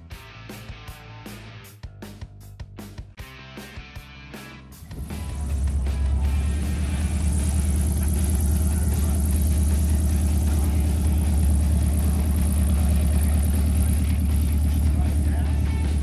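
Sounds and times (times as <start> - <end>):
propeller aircraft engine humming: 4.7 - 16.0.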